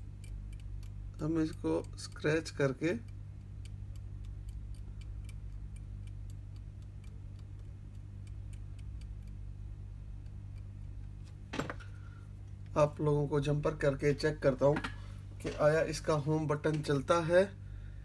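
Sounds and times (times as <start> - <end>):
metal scraper ticking on circuit board: 0.0 - 11.2
steady low hum: 0.0 - 18.0.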